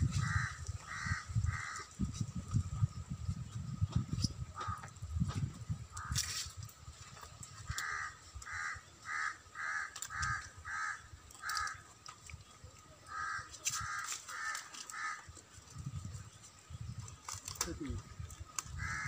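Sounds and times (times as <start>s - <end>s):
crow cawing: 0.1s - 1.9s, 4.6s - 4.9s, 5.9s - 6.2s, 7.7s - 11.8s, 13.1s - 15.3s, 18.8s - 19.0s.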